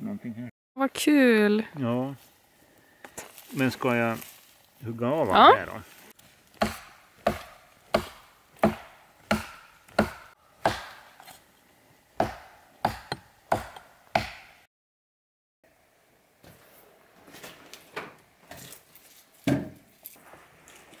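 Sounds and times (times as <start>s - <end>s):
axe chopping wood: 6.6s - 11.3s, 12.2s - 14.7s.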